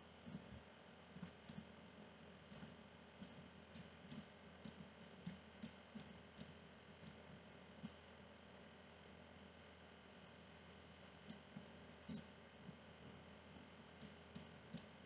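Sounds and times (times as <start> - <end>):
faint computer mouse clicks: 2.5 - 7.2, 11.2 - 12.3, 14.0 - 15.0.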